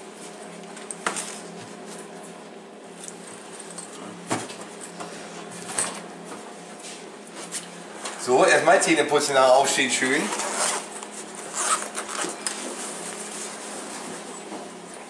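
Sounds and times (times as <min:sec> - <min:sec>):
steady low hum: 0:00.0 - 0:15.0
rustling in a backpack: 0:10.2 - 0:14.4.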